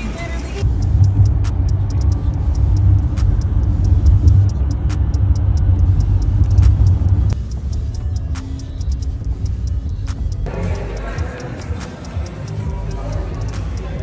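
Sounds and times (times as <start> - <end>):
road and engine noise in van cabin: 0.0 - 10.6, 12.0 - 14.0.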